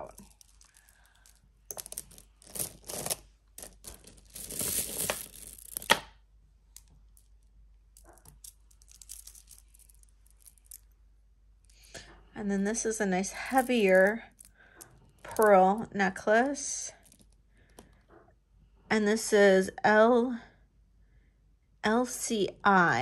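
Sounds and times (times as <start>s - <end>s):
packaging rustling and crinkling: 1.9s - 5.9s.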